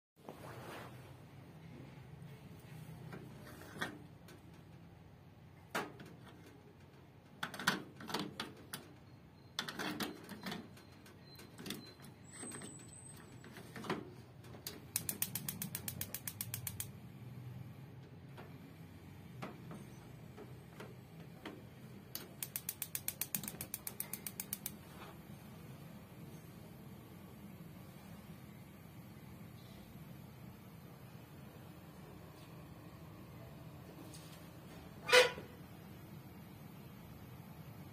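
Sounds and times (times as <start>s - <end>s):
gas igniter ticking: 14.6s - 17.0s, 20.9s - 24.8s.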